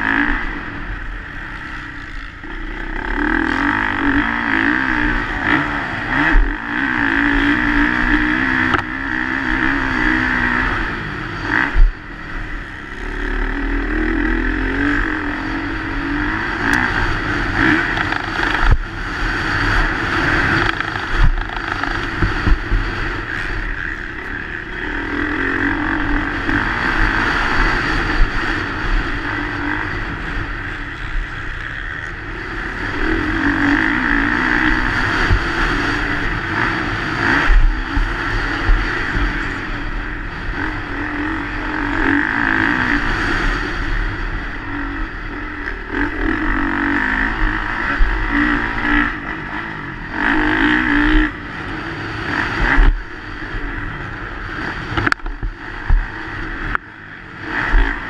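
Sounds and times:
motocross bike engine revving: 0.0s - 58.0s.

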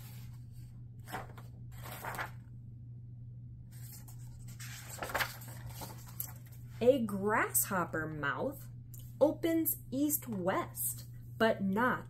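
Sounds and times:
paper pages rustling: 0.0s - 2.5s, 3.7s - 6.8s
steady low hum: 0.0s - 12.0s.

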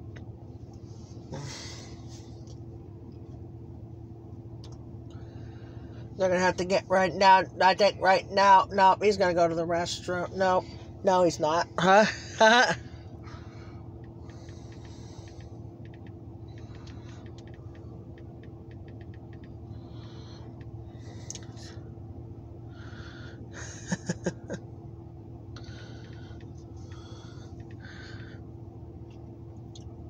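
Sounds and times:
diesel locomotive idling: 0.0s - 30.0s.

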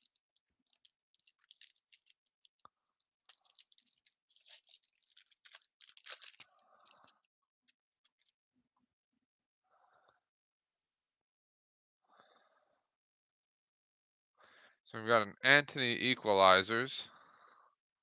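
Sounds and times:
foil wrapper crinkling: 0.0s - 7.3s, 8.0s - 8.3s.

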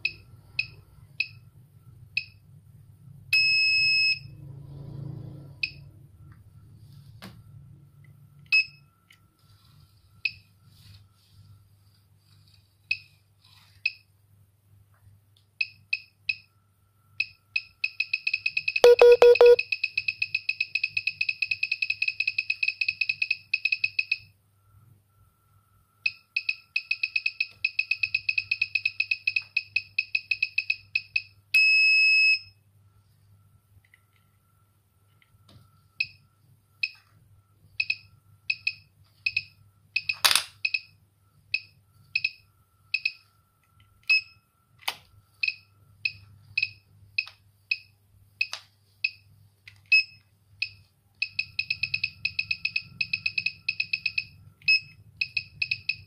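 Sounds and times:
electronic counter beeping: 17.9s - 24.2s, 50.0s - 56.0s.

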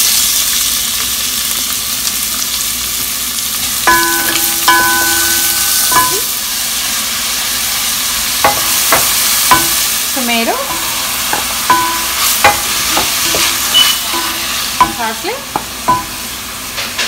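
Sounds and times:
onion sizzling in hot oil: 0.0s - 17.0s
spatula squeaking against pot: 10.7s - 15.1s.

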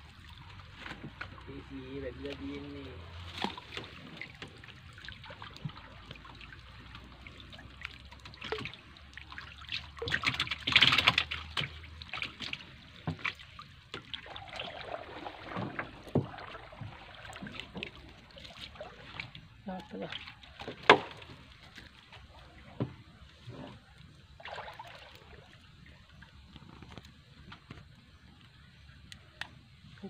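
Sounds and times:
water splashing and dripping: 0.0s - 30.0s
loud splash: 14.1s - 17.8s, 24.4s - 25.5s.

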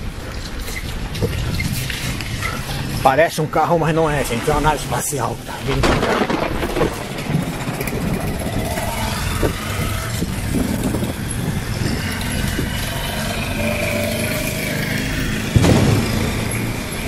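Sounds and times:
car passing: 3.9s - 17.0s
loud thump: 15.6s - 17.0s.

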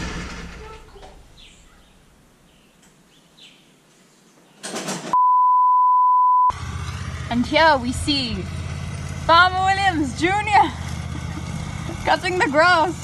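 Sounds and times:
burst of noise: 0.0s - 1.5s
bird chirps: 1.3s - 4.6s
high electronic beep tone: 5.2s - 6.5s.

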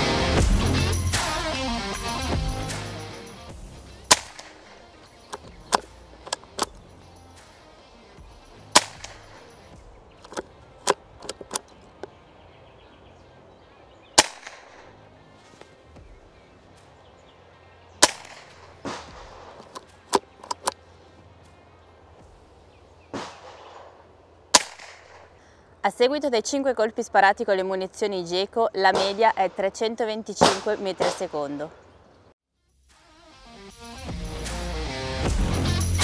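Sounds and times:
rifle shots: 4.1s - 6.8s, 8.7s - 11.7s, 14.2s - 14.9s, 18.0s - 20.7s, 23.1s - 25.4s, 30.4s - 31.4s
metallic lever clicks: 5.2s - 6.9s, 8.8s - 12.2s, 19.6s - 20.8s.

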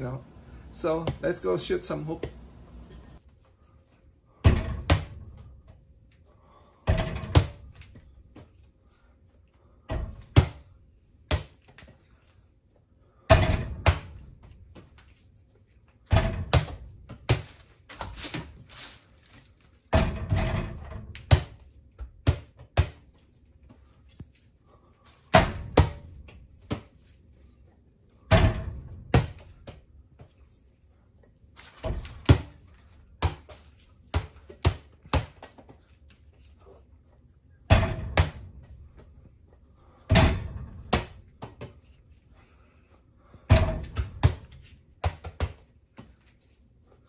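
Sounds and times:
ball thudding against hoop and door: 4.3s - 5.9s, 6.8s - 8.5s, 9.8s - 12.0s, 13.2s - 15.0s, 16.0s - 18.7s, 19.8s - 23.1s, 25.3s - 27.0s, 28.2s - 30.3s, 31.6s - 35.8s, 37.6s - 39.0s, 40.0s - 41.9s, 43.4s - 46.1s.

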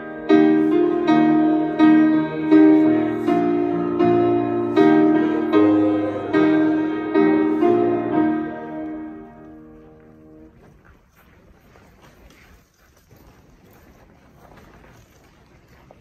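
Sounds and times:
piano playing slow chords: 0.0s - 10.6s.

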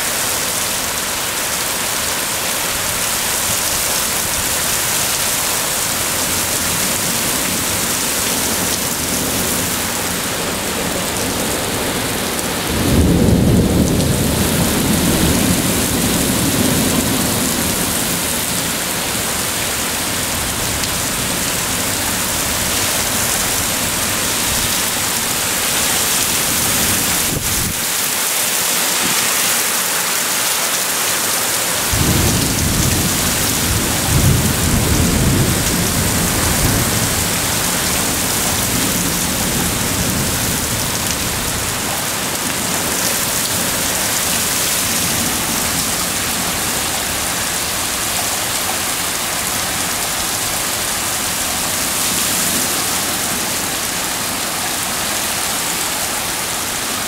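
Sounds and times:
heavy rain pouring: 0.0s - 57.0s
thunder rumble: 6.0s - 27.8s, 31.8s - 47.3s.

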